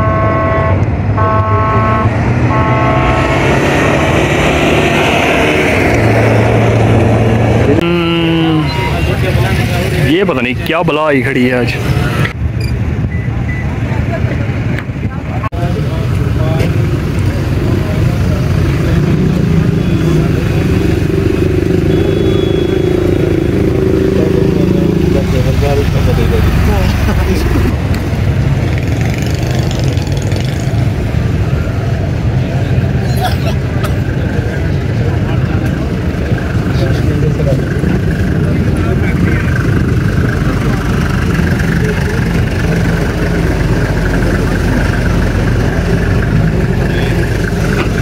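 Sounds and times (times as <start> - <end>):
horn blasts: 0.0 - 4.0, 7.8 - 9.5, 21.7 - 23.7
engine drone: 0.0 - 48.0
tyre and dirt noise: 0.0 - 48.0
pickup truck speeding past: 1.3 - 7.8
engine idling: 34.2 - 48.0.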